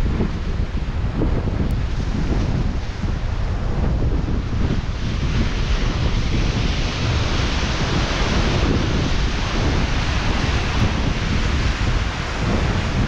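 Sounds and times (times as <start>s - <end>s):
ocean surf: 0.0s - 13.0s
wind buffeting microphone: 0.0s - 13.0s.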